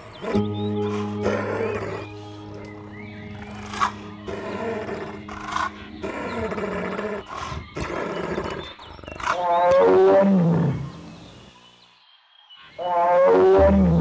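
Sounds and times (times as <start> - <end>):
animal harsh pitched calls: 3.4 - 8.6.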